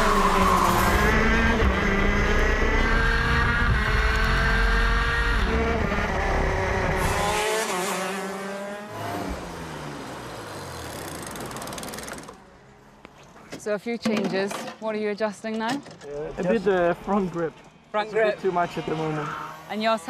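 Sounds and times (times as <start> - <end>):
kart engine at high revs: 0.0 - 12.6, 18.0 - 20.0.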